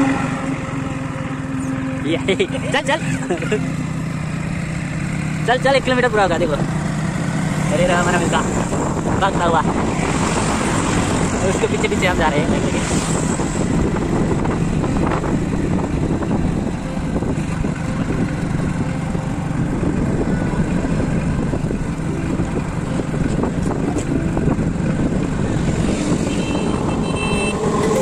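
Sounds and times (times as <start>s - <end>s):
highway traffic: 0.0s - 28.0s
vehicles passing: 0.0s - 28.0s
wind on microphone: 8.3s - 28.0s.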